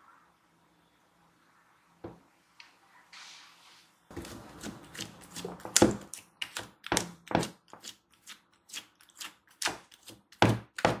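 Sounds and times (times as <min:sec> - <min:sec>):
fingers squishing slime: 0:04.3 - 0:11.0.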